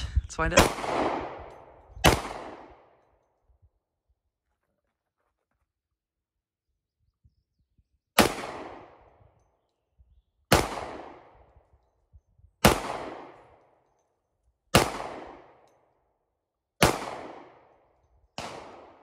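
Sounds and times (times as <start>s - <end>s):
gunshot echo: 0.5s - 2.9s, 8.2s - 9.0s, 10.5s - 11.3s, 12.6s - 13.4s, 18.4s - 19.0s
pistol shots: 0.5s - 3.0s, 8.2s - 9.1s, 10.5s - 11.4s, 12.6s - 13.6s, 14.7s - 15.6s, 16.8s - 17.8s, 18.4s - 19.0s.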